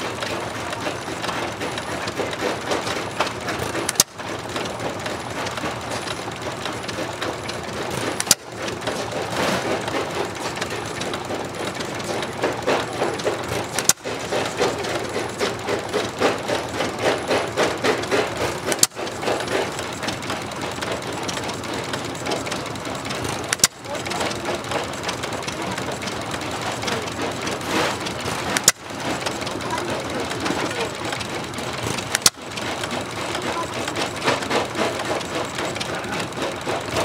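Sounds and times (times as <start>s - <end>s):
old stationary engines running: 0.0s - 37.0s
sharp clicks: 0.2s - 37.0s.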